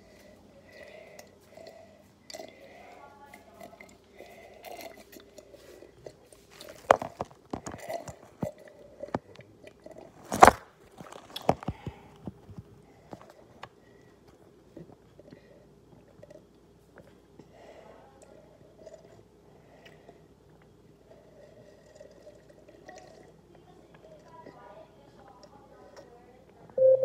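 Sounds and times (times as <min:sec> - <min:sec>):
gulping and swallowing water: 0:03.3 - 0:10.3, 0:14.7 - 0:16.7, 0:18.2 - 0:26.1.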